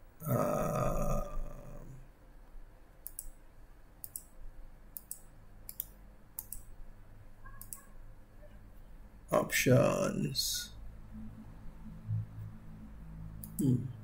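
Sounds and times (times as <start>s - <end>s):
low steady hum: 0.0s - 14.0s
computer mouse button clicking: 3.0s - 3.4s, 4.0s - 4.3s, 5.0s - 6.7s, 13.4s - 13.7s.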